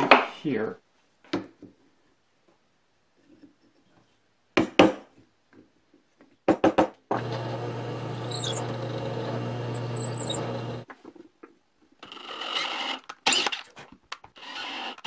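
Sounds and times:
drill press motor humming: 0:07.1 - 0:10.9.

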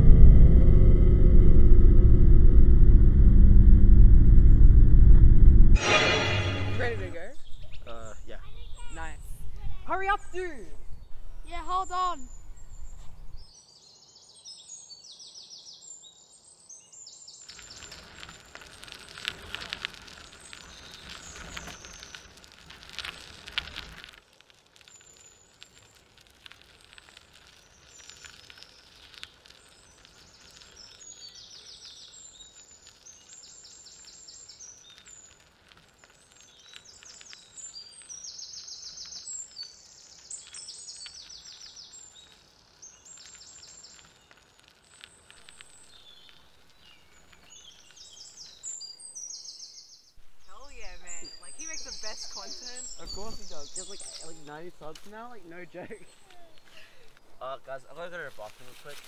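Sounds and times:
rustling crackling noise: 0:00.0 - 0:13.5, 0:17.4 - 0:59.0
birds chirping: 0:05.8 - 0:19.4, 0:36.0 - 0:58.1.

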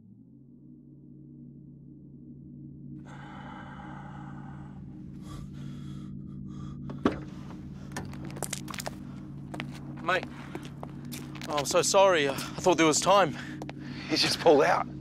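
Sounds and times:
low drone of held tones: 0:00.0 - 0:15.0
footstep scuffs on road: 0:08.1 - 0:11.8.

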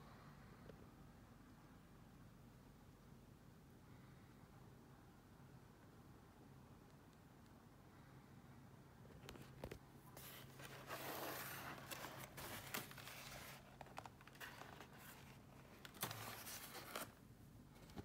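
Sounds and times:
plastic bags rustling and crinkling: 0:10.2 - 0:17.2.

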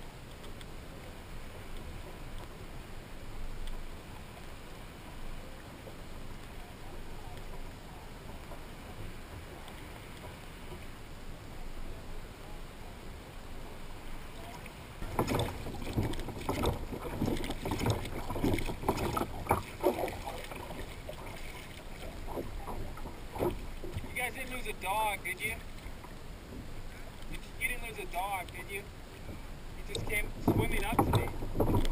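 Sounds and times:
water splashes: 0:00.0 - 0:31.9
wind: 0:00.0 - 0:31.9
wash of water: 0:14.2 - 0:26.1, 0:26.8 - 0:31.9
water slapping against kayak hull: 0:14.3 - 0:31.9.

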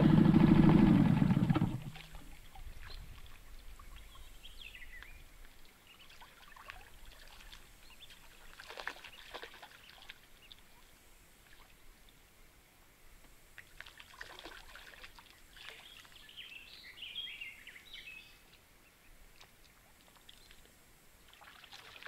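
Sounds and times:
water trickling and lapping: 0:00.2 - 0:12.5, 0:13.2 - 0:22.0
small water splashes: 0:00.5 - 0:12.2, 0:13.5 - 0:16.6, 0:19.3 - 0:22.0.

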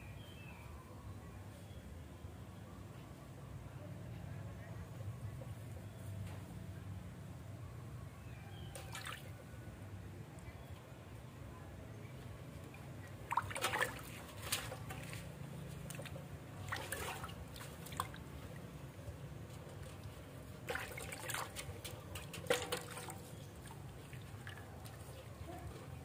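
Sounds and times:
water splashing in metal basin: 0:08.7 - 0:09.4, 0:13.0 - 0:18.8, 0:19.8 - 0:25.1.

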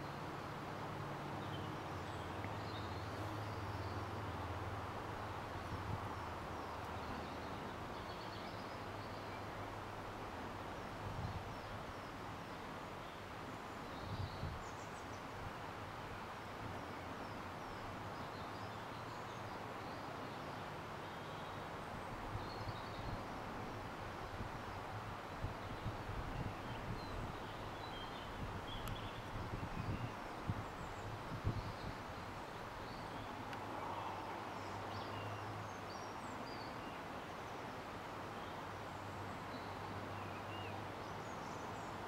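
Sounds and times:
small birds chirping: 0:25.5 - 0:37.0.

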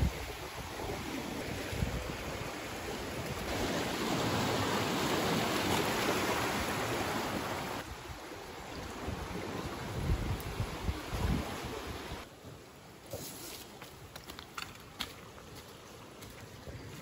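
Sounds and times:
wind on microphone: 0:00.0 - 0:04.4, 0:07.4 - 0:12.2
surf washing against rocks: 0:00.0 - 0:12.3.

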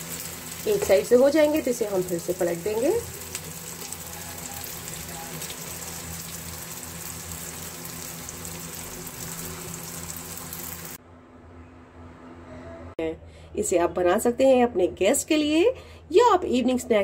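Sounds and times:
deep-frying oil sizzle: 0:00.0 - 0:11.0.

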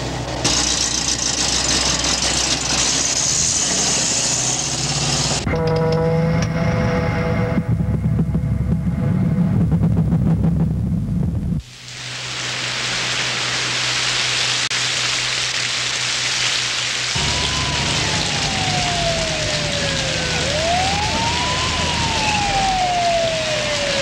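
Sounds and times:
heavy rain hissing: 0:00.0 - 0:05.4, 0:11.6 - 0:24.0
low hum: 0:04.9 - 0:11.7
siren wailing: 0:17.2 - 0:24.0.

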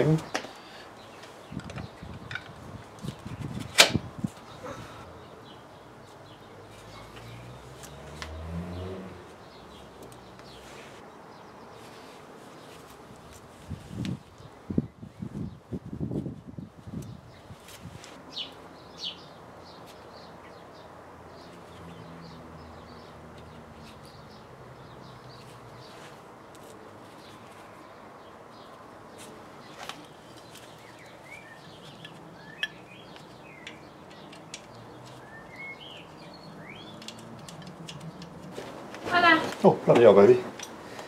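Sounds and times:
faint steady outdoor hum: 0:00.0 - 0:41.0
small birds chirping: 0:00.0 - 0:41.0
light clicks of parts handled: 0:31.8 - 0:35.3, 0:36.9 - 0:38.6.

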